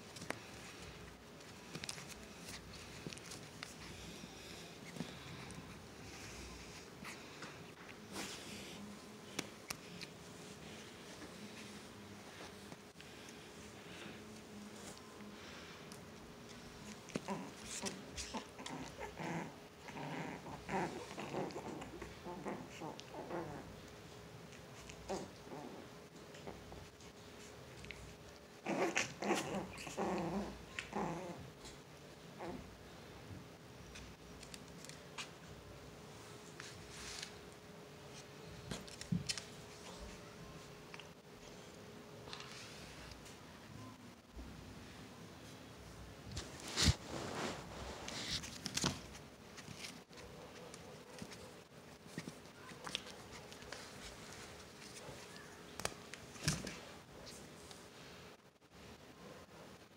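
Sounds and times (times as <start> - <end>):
small dogs growling: 16.7 - 23.9, 24.5 - 27.0, 27.8 - 32.8
faint scuffling: 46.2 - 57.8.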